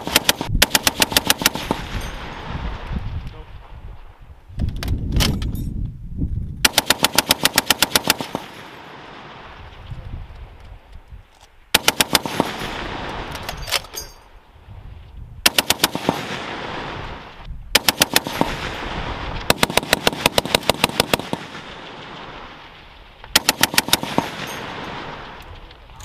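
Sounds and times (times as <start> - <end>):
machine gun firing bursts: 0.0 - 2.0, 6.6 - 8.7, 11.7 - 13.0, 15.4 - 16.6, 17.8 - 22.0, 23.3 - 25.2
rolling echo of gunfire: 0.0 - 2.7, 6.6 - 9.6, 11.7 - 13.4, 15.4 - 25.4.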